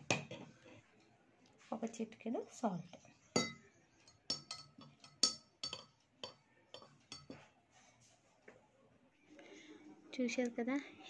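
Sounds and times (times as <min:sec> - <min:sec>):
spoon clinking against glass: 0:03.4 - 0:07.4.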